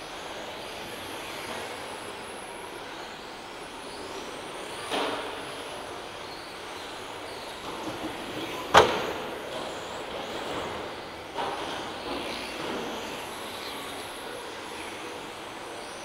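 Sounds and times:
whirring of electric model cars: 0.0s - 16.0s
sharp knock in hall: 8.7s - 9.4s.

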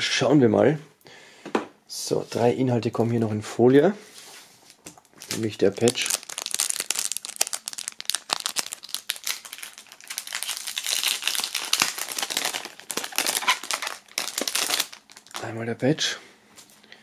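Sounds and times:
plastic film crinkling: 4.6s - 15.6s.

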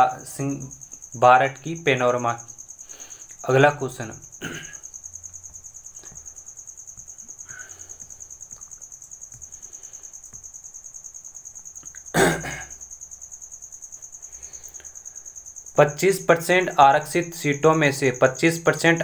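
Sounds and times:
cricket chirping: 0.0s - 19.0s
person coughing: 4.4s - 4.8s, 12.1s - 12.8s.

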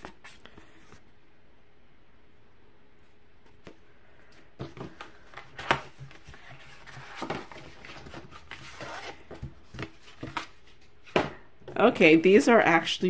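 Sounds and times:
paper rustling: 4.6s - 11.3s.

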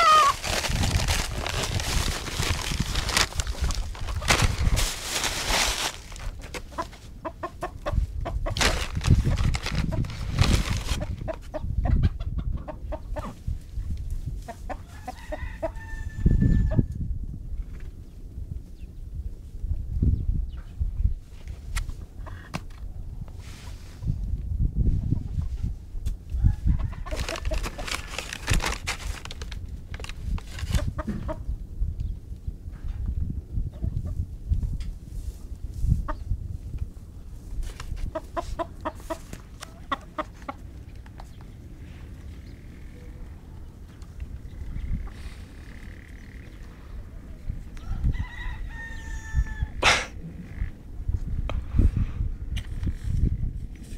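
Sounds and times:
chickens clucking: 0.0s - 0.4s, 3.5s - 4.5s, 6.4s - 10.0s, 10.9s - 13.5s, 14.3s - 15.8s, 22.0s - 22.5s, 30.8s - 31.5s, 33.6s - 34.2s, 38.0s - 47.9s
steady low rumble: 16.8s - 27.2s, 49.6s - 53.9s.

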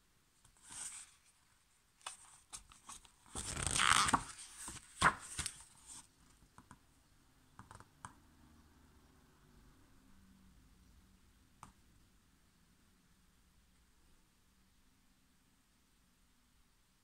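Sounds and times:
page turning swish: 2.0s - 6.0s.

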